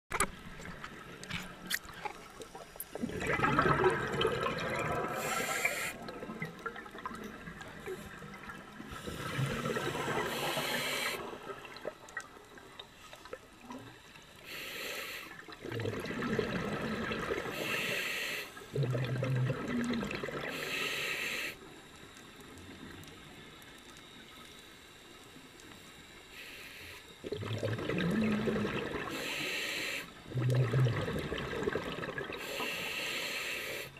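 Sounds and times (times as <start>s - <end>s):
gurgling exhaled bubbles: 3.0s - 12.4s, 15.5s - 17.7s, 18.7s - 20.6s, 27.2s - 29.2s, 30.2s - 32.5s
hissing regulator inhalations: 4.8s - 6.2s, 7.8s - 11.5s, 14.3s - 15.6s, 17.4s - 18.7s, 20.4s - 21.8s, 26.2s - 27.2s, 29.0s - 30.3s, 32.3s - 33.9s.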